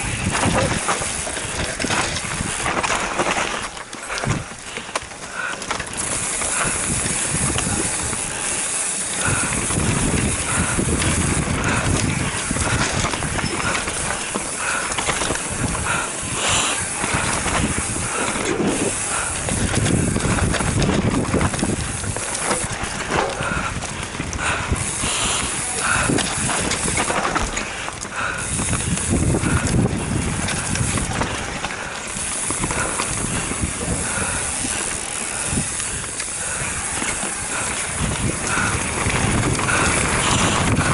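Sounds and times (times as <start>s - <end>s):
wind rushing over microphone: 0.0s - 3.5s, 5.9s - 40.9s
mountain bike tyre and frame noise: 0.0s - 40.9s.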